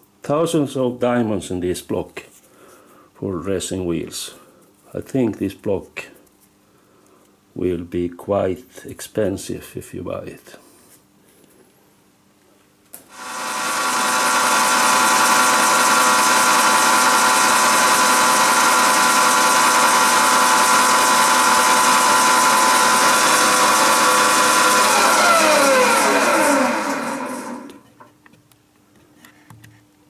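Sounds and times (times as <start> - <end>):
grinding wheel spindle whine: 13.2 - 27.8.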